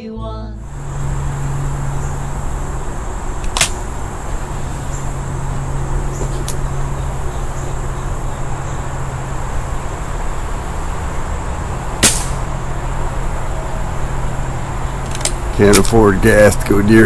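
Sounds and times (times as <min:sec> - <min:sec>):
low background noise: 0:00.0 - 0:17.0
air rifle shot: 0:03.5 - 0:03.8, 0:12.0 - 0:12.5.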